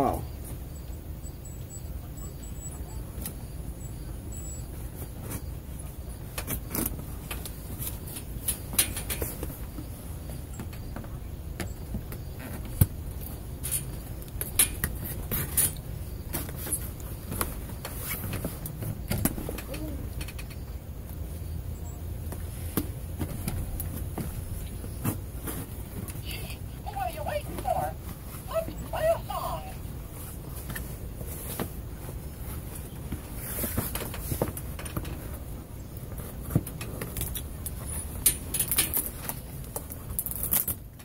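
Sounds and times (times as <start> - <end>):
packing tape and cardboard crackling: 36.0 - 41.0.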